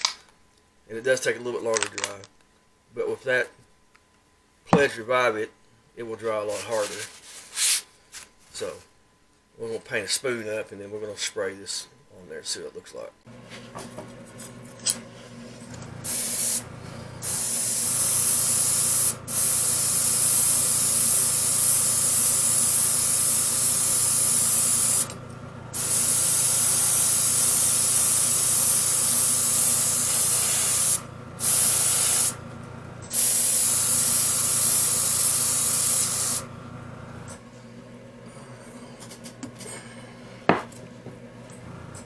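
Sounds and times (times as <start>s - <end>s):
airbrush hissing: 16.0s - 25.2s, 25.8s - 32.4s, 33.1s - 36.5s.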